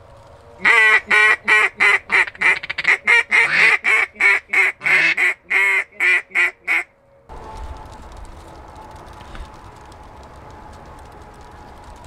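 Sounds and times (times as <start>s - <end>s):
duck call quacks: 0.6s - 6.9s.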